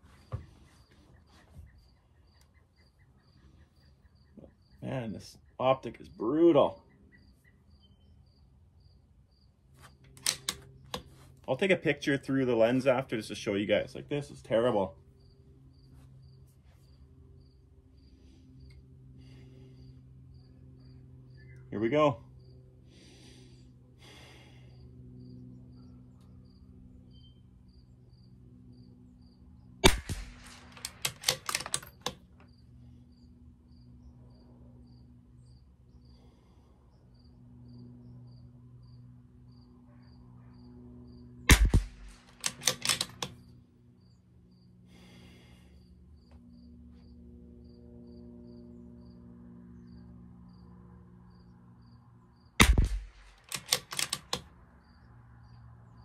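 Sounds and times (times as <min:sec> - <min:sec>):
rifle bolt metallic clicks: 0:10.1 - 0:11.1, 0:29.8 - 0:32.2, 0:41.5 - 0:43.4, 0:52.6 - 0:54.5
rifle shots: 0:29.8 - 0:32.1, 0:41.5 - 0:43.3, 0:52.6 - 0:54.4.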